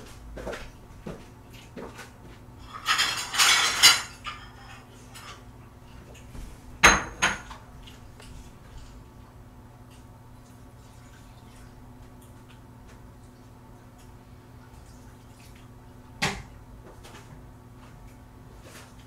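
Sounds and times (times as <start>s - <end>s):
dishes and pots clattering: 2.6s - 5.5s, 6.8s - 7.6s.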